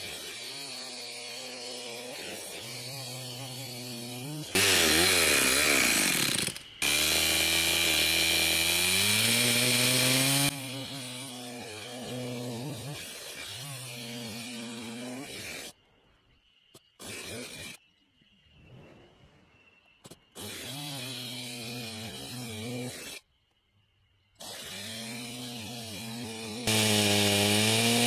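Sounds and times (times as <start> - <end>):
chainsaw idling and revving: 0.0 - 15.4, 20.4 - 23.2, 24.4 - 28.0
chainsaw cutting log: 0.0 - 15.7, 20.4 - 23.2, 24.4 - 28.0.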